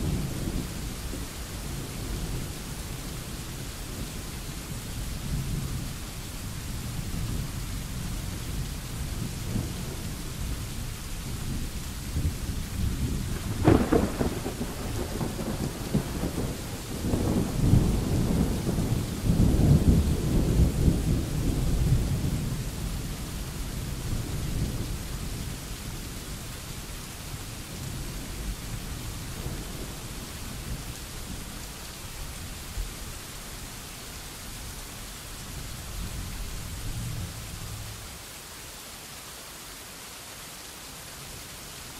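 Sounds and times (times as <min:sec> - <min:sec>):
steady rain: 0:00.0 - 0:41.9
rolling thunder: 0:06.8 - 0:25.6
thunderclap: 0:12.2 - 0:22.4.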